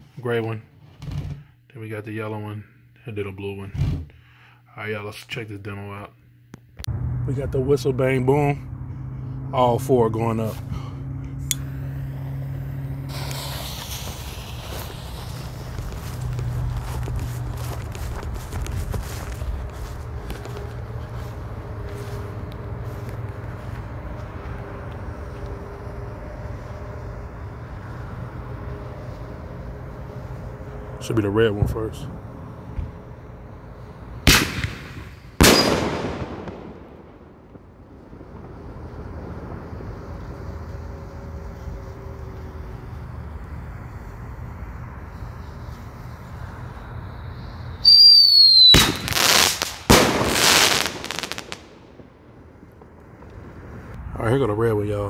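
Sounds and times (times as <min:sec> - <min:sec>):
faint steady hum: 0:00.0 - 0:55.0
low outdoor rumble: 0:00.0 - 0:55.0
firework shrill whistle: 0:11.5 - 0:17.9, 0:34.2 - 0:36.7, 0:45.1 - 0:51.7
firework bang and burst: 0:12.0 - 0:20.6, 0:34.2 - 0:41.8, 0:47.8 - 0:53.9.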